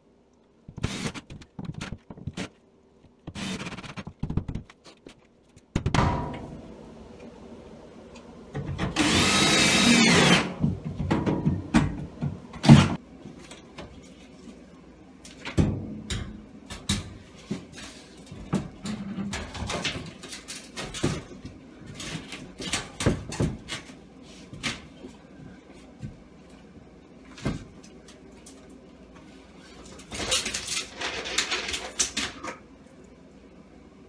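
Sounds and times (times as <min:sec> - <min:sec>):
board knocking and scraping on studs: 0:03.3 - 0:05.1.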